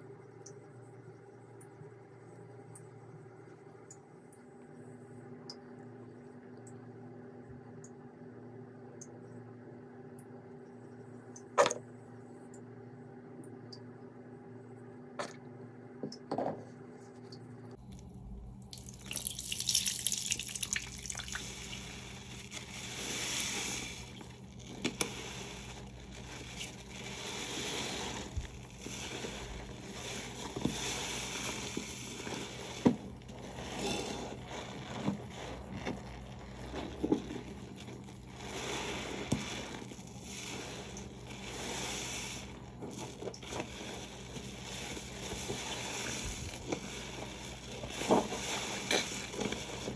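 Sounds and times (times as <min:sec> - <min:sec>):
water dripping and splashing: 0:17.9 - 0:22.0
soapy sponge squelching: 0:18.6 - 0:49.9.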